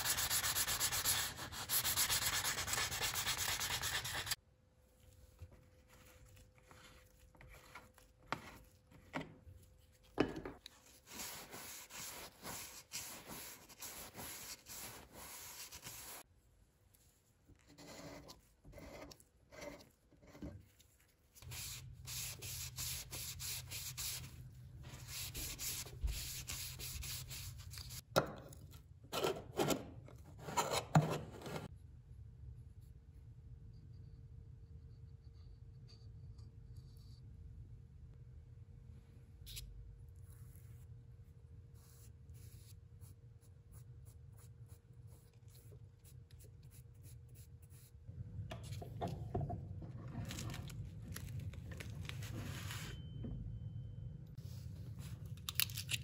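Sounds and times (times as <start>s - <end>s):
hand sanding strokes: 0.0s - 4.4s, 11.0s - 16.2s
low steady hum: 31.7s - 56.0s.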